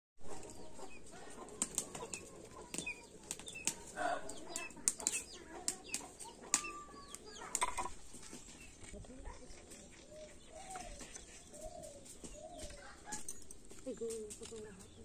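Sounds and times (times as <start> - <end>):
small birds chirping: 0.2 - 15.0
sharp slaps and taps: 1.5 - 7.9.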